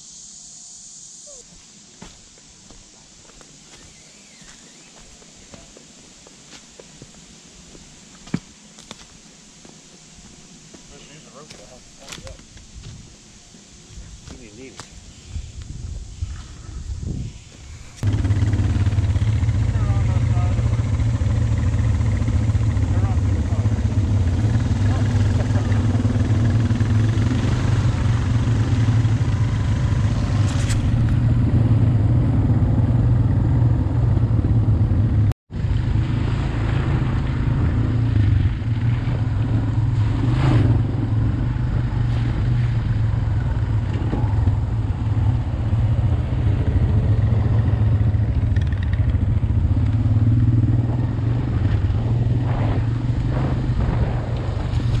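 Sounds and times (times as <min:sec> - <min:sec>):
atv engine droning: 0:18.0 - 0:55.0.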